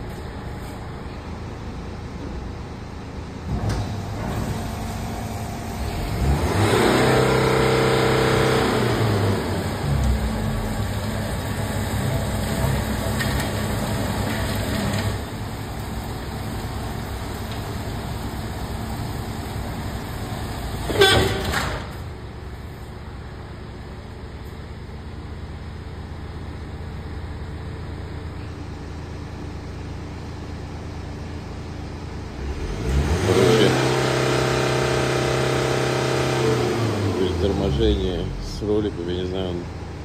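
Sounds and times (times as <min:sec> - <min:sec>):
roller motors humming: 0:00.0 - 0:40.0
loud mechanical clunk: 0:03.4 - 0:04.9, 0:20.8 - 0:22.1.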